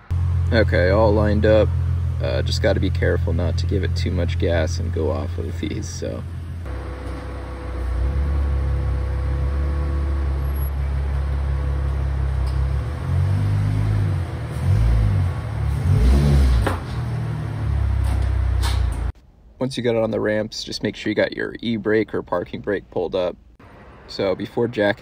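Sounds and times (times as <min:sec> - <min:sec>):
car engine revving: 0:00.0 - 0:19.2.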